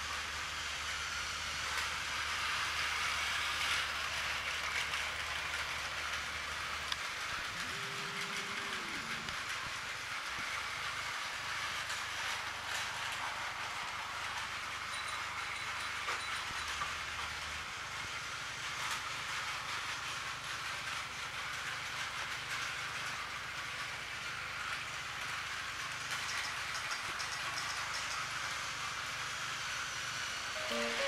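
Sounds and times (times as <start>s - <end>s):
toy train motors whirring: 0.0s - 31.0s
plastic wheels clicking on track: 1.6s - 31.0s
short pitched tone: 30.6s - 31.0s.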